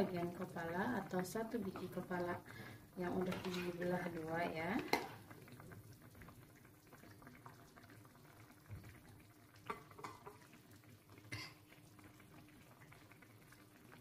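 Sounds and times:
broth simmering in pan: 0.0s - 14.0s.

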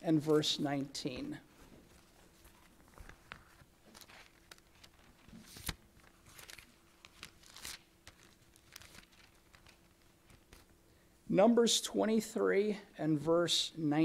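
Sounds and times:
book pages rustling: 1.5s - 10.8s.

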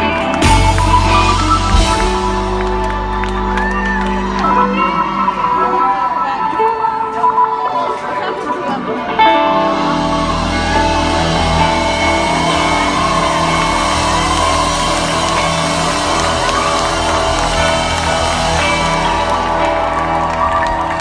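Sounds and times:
electric guitar chord: 0.0s - 6.6s, 9.1s - 21.0s
live rock band: 0.0s - 21.0s
crowd shouting and whooping: 9.2s - 21.0s.

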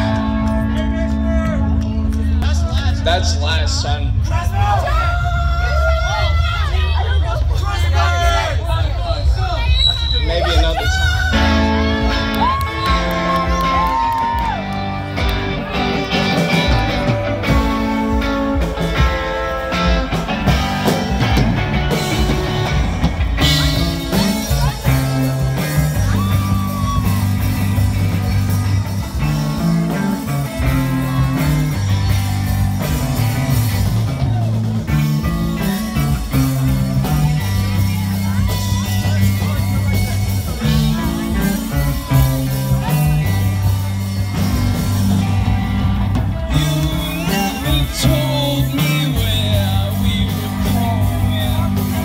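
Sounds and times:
electric guitars: 0.0s - 8.4s, 10.4s - 52.0s
bass guitar notes: 0.0s - 52.0s
steady drums: 0.0s - 52.0s
person singing: 46.5s - 52.0s.

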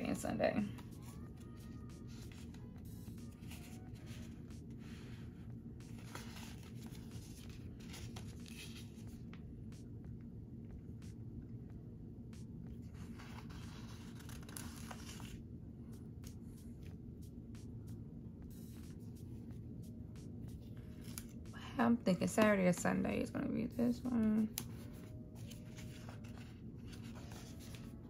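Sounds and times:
low steady hum: 0.0s - 28.0s
paper stickers peeling and rustling: 5.9s - 9.2s, 13.0s - 15.4s, 24.3s - 28.0s.

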